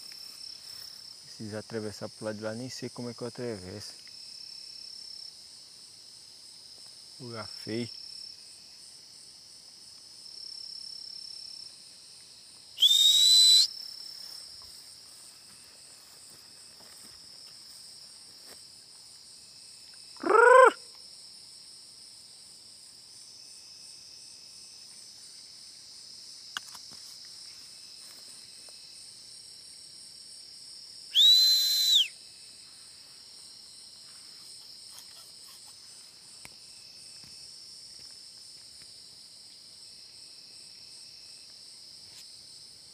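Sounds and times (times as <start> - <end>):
night insects trilling: 0.0 - 42.9
loud high whistles: 12.8 - 13.8, 31.1 - 32.2.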